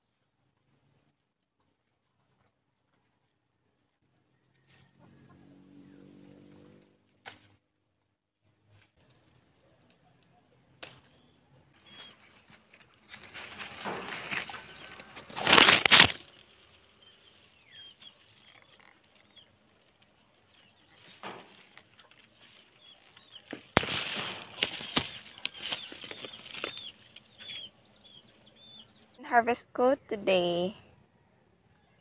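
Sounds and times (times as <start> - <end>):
faint bird chirps: 0.0 - 12.6
leaves and branches rustling: 11.8 - 27.8.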